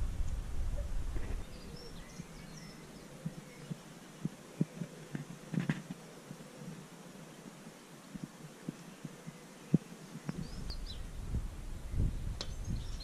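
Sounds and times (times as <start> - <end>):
wind buffeting microphone: 0.0 - 5.8, 8.1 - 13.0
faint bird chirps: 0.8 - 11.2.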